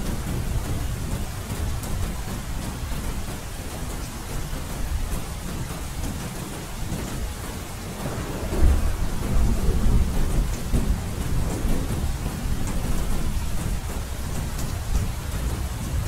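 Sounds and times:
steady rain: 0.0 - 16.0
thunder rumbling: 7.8 - 16.0.

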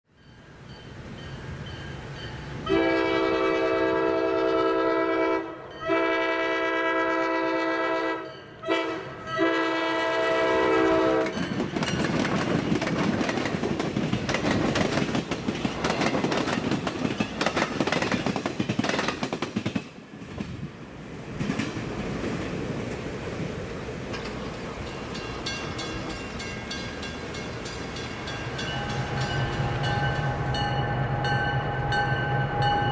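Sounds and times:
train passing close by: 0.1 - 32.9
locomotive air horn blasts: 2.6 - 11.4.

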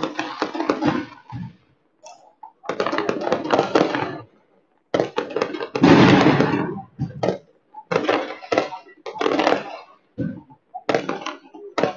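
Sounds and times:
firecrackers popping and crackling: 0.0 - 11.9.

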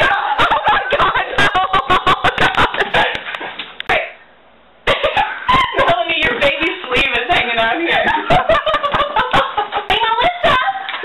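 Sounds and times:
young women laughing: 0.0 - 3.3, 4.8 - 6.3, 7.9 - 11.0.

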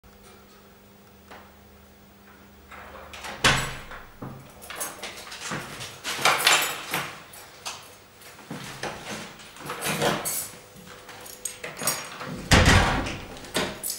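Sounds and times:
door lock clunk: 3.2 - 5.0, 11.9 - 13.9.

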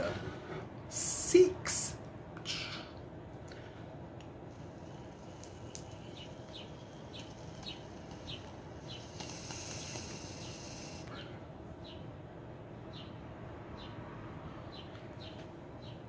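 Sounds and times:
bong hissing: 4.4 - 11.2.

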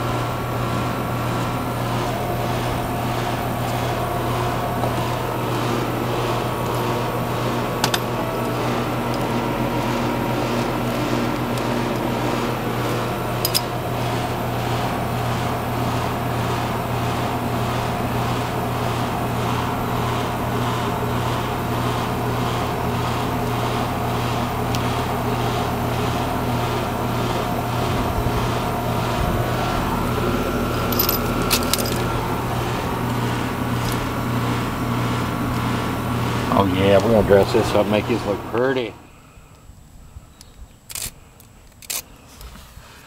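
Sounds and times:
air conditioner humming: 0.0 - 43.0
faint clicks: 40.4 - 42.5.

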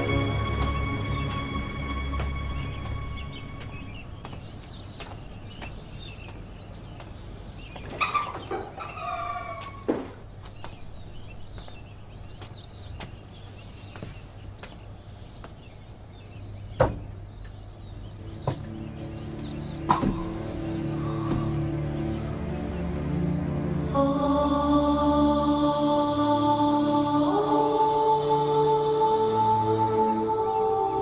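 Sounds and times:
small birds chirping: 0.0 - 24.7
chickens clucking: 7.8 - 10.5, 18.4 - 21.8.

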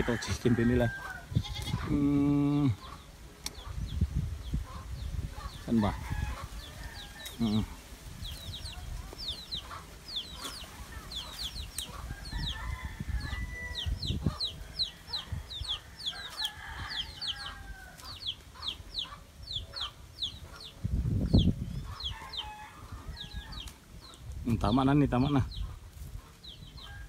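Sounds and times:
rooster crowing: 0.0 - 1.4, 5.9 - 7.4, 12.0 - 14.1, 14.7 - 18.0, 22.1 - 23.6
chickens clucking: 0.0 - 27.0.

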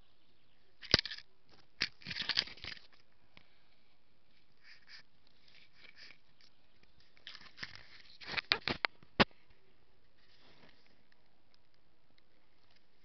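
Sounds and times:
camera handling rustle: 0.8 - 3.0, 4.3 - 9.3.

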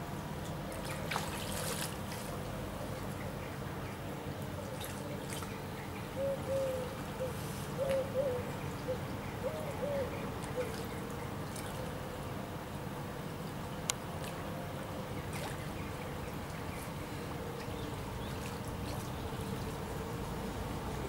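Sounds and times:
river water running: 0.0 - 21.0
bird cooing: 6.2 - 11.0.

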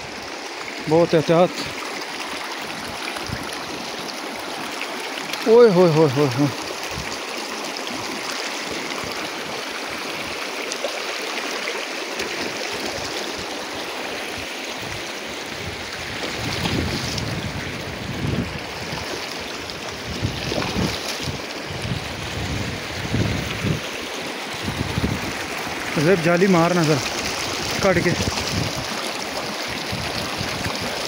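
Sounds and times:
river rushing over rocks: 0.0 - 31.0
wind buffeting microphone: 2.8 - 3.6, 14.4 - 23.9, 24.5 - 26.0, 27.2 - 29.0, 29.7 - 31.0.

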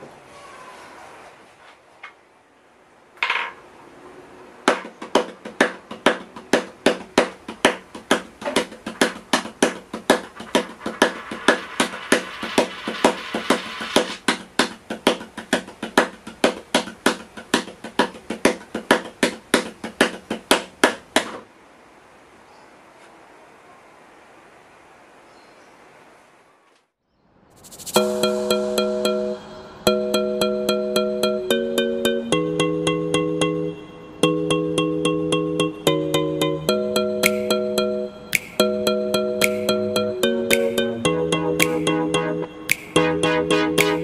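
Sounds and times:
clicking knocks beat: 4.7 - 21.4, 36.7 - 44.0
steady low tone: 27.6 - 44.0.

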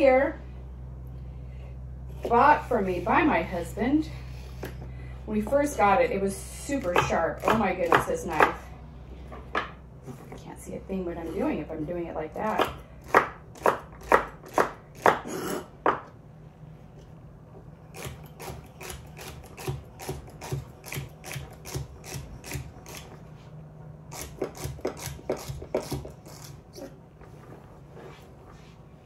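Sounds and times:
knife chopping on wooden board: 6.8 - 8.6, 12.5 - 16.1.

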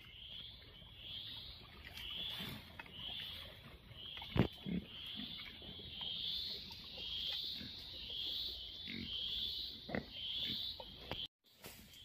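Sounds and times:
pigs grunting: 4.3 - 5.9, 8.8 - 10.9.

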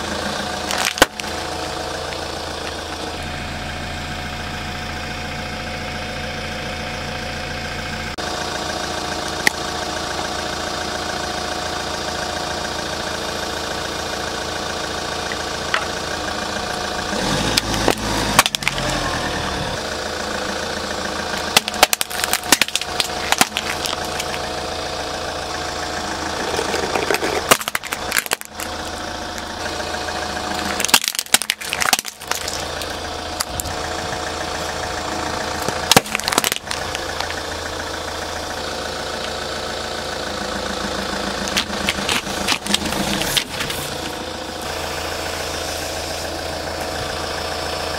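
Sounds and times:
car engine idling: 0.0 - 47.9
objects crunching under tyre: 0.4 - 3.2, 17.1 - 19.6, 21.4 - 24.5, 26.2 - 34.0, 35.5 - 37.5, 41.3 - 44.7.

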